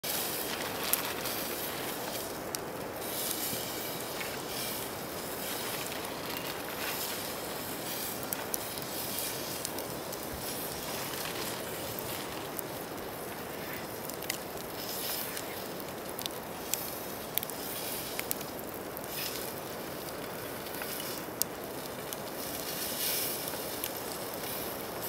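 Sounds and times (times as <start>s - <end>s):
steady rushing noise: 0.0s - 15.4s
campfire pops and crackles: 0.0s - 25.0s.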